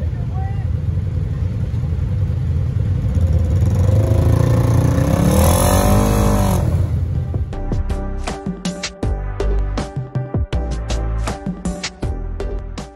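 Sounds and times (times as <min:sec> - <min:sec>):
utv engine revving: 0:03.0 - 0:07.4
outro music: 0:05.4 - 0:12.9.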